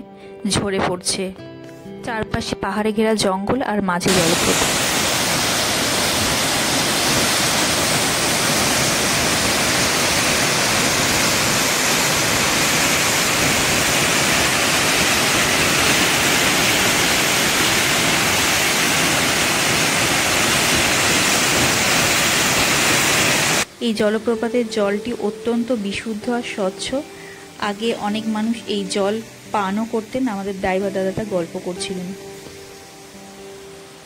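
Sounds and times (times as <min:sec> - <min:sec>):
waterfall rushing: 0:04.1 - 0:23.8.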